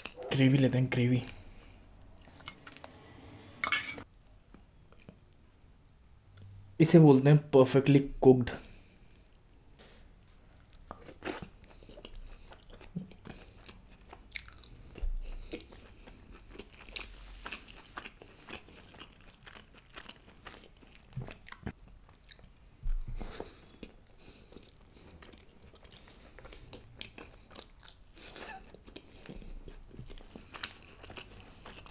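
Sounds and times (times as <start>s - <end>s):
wet mouth clicks and crunching: 10.6s - 22.5s
chewing and biting food: 10.6s - 31.9s.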